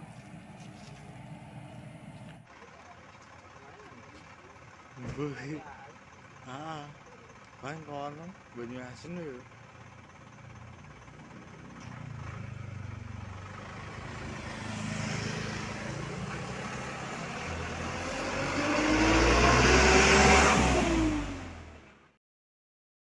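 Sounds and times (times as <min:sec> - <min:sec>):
motorcycle passing: 0:00.0 - 0:04.4, 0:10.4 - 0:21.8
dump truck driving by: 0:00.0 - 0:22.2.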